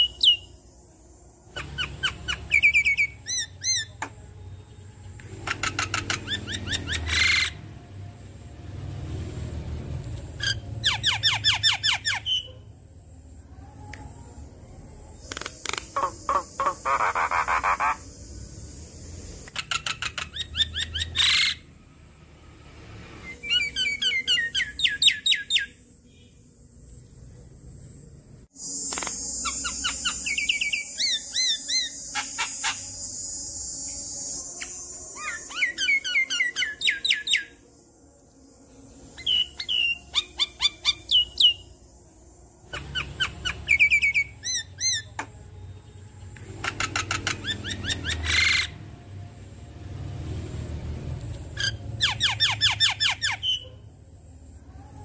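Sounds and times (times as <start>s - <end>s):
bird chirping and whistling: 0.0s - 0.5s, 1.6s - 4.0s, 5.4s - 7.6s, 10.4s - 12.5s, 15.7s - 18.0s, 19.5s - 21.6s, 23.2s - 25.8s, 28.7s - 37.6s, 39.2s - 41.7s, 42.7s - 45.2s, 46.6s - 48.8s, 51.6s - 53.6s.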